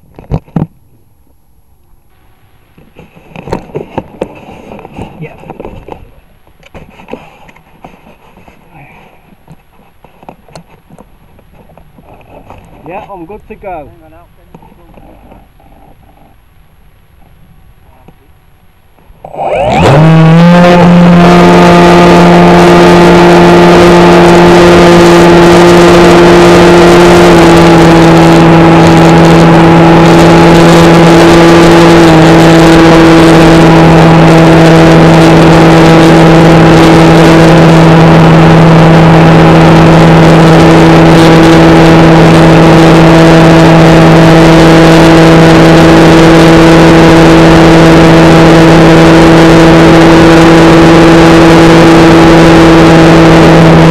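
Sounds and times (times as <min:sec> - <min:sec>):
model plane motor and propeller: 0:19.2 - 0:53.9.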